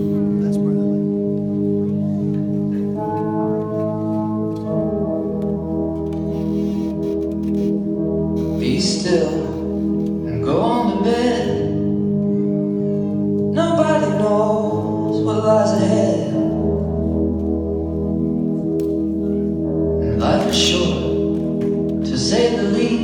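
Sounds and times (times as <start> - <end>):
recorded song over sound system: 8.4 - 12.1, 13.5 - 16.9, 20.0 - 23.0.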